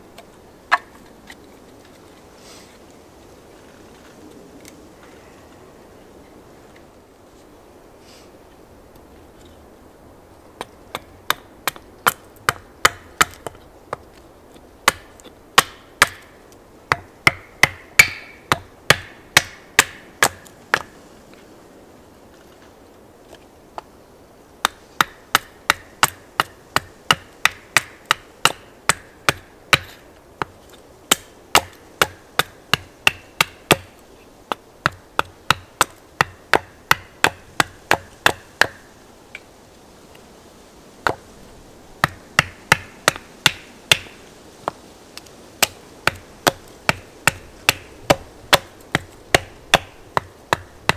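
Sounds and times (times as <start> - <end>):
hatchet chopping log: 10.6 - 14.2, 14.8 - 20.9, 24.6 - 38.9, 42.0 - 44.8, 45.6 - 50.9.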